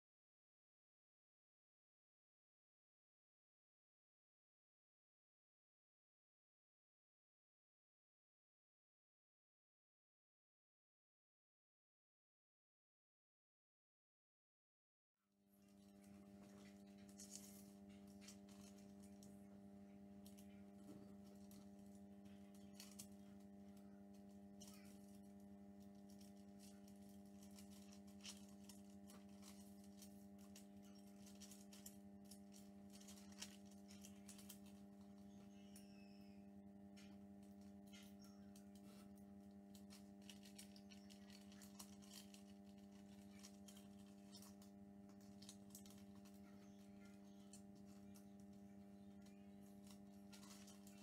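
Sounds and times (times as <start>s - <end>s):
faint steady hum: 15.5s - 51.0s
tissue paper rustling: 15.6s - 36.4s, 37.0s - 51.0s.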